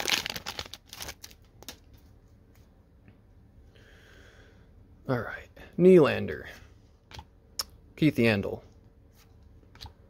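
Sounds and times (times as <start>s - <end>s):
foil wrapper crinkling: 0.0s - 1.8s.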